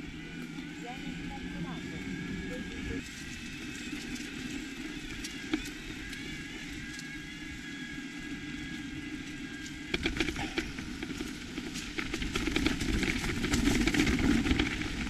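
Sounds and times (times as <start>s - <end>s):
bike rattling on stony track: 0.0s - 15.0s
electric motor whine: 0.0s - 15.0s
tyres rolling on tarmac: 0.0s - 15.0s.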